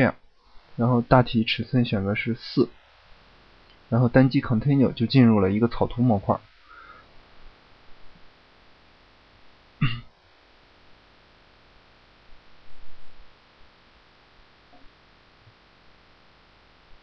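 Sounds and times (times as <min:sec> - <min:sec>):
faint microphone hum: 0:00.0 - 0:17.0
person clearing throat: 0:09.8 - 0:10.1.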